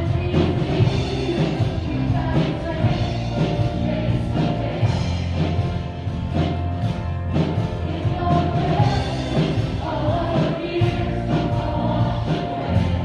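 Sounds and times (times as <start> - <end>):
woman singing into a microphone: 0.0 - 3.7
electric keyboard: 0.0 - 13.0
steady drum beat: 0.0 - 13.0.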